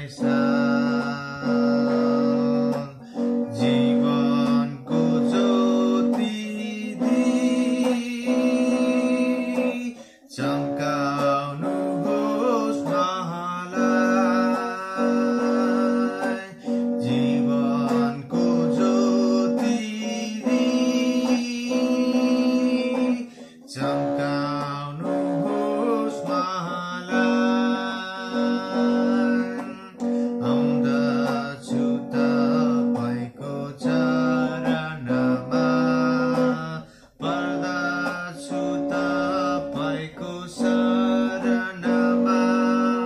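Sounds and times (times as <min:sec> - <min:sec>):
acoustic guitar: 0:00.0 - 0:43.0
man singing a hymn: 0:00.0 - 0:43.0.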